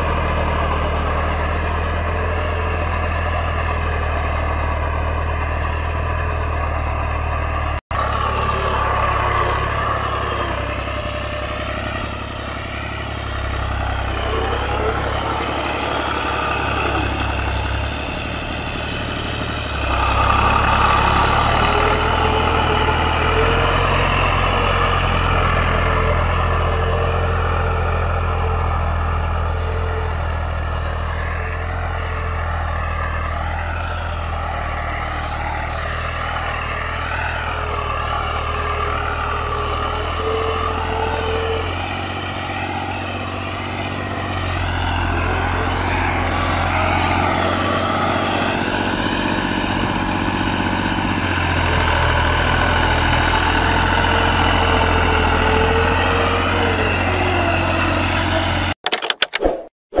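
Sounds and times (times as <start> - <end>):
tractor diesel engine under load: 0.0 - 59.4
clicks: 58.8 - 59.7.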